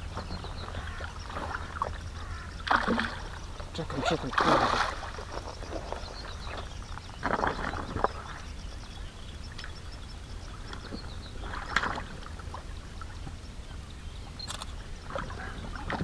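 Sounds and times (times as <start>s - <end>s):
fish splashing in water: 0.8s - 6.1s.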